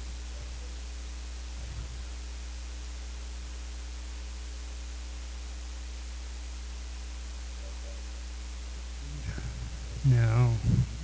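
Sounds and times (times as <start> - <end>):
constant hiss: 0.0 - 11.0
low electrical hum: 0.0 - 11.0.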